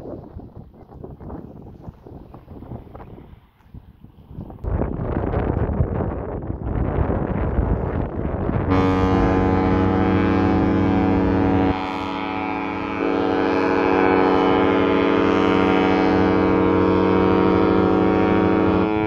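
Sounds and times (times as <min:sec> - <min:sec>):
wind buffeting microphone: 0:00.0 - 0:19.0
ship horn long blast: 0:08.4 - 0:19.0.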